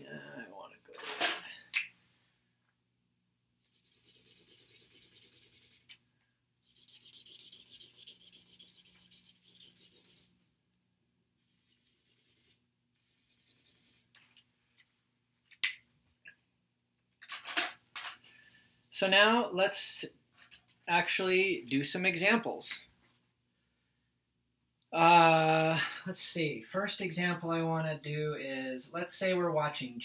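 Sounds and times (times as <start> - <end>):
highlighter scratching on paper: 3.6 - 5.9, 6.6 - 10.3, 11.4 - 14.1.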